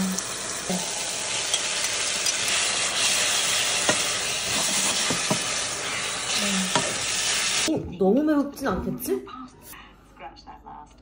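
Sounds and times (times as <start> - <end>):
food sizzling in a frying pan: 0.0 - 7.7.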